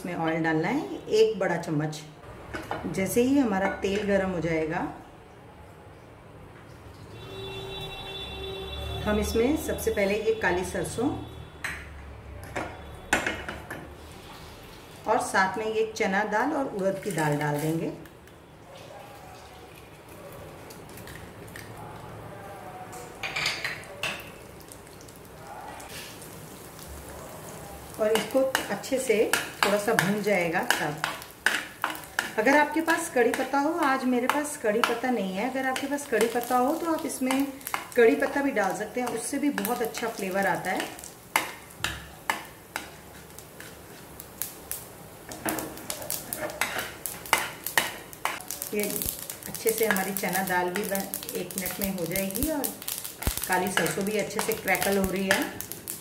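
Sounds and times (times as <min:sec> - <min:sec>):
seeds sizzling in hot oil: 0:13.9 - 0:18.0, 0:24.2 - 0:56.0
metal spoon scraping a pan: 0:28.1 - 0:33.6, 0:34.2 - 0:44.1, 0:45.4 - 0:55.6.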